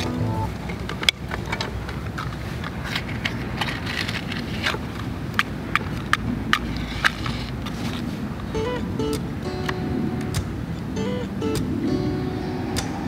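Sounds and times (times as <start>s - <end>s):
sharp clicks and crackles: 0.5s - 10.6s.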